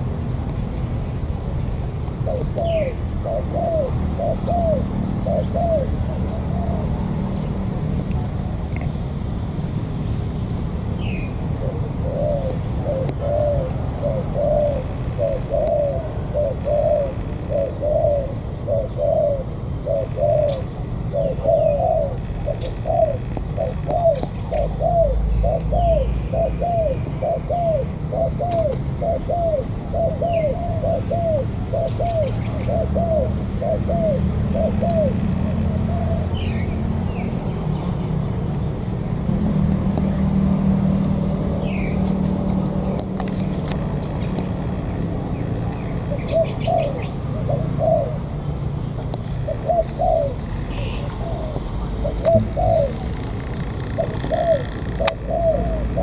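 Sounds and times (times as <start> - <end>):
dove cooing: 2.1 - 8.5, 11.0 - 38.4, 40.0 - 56.0
low rumble: 51.6 - 54.0.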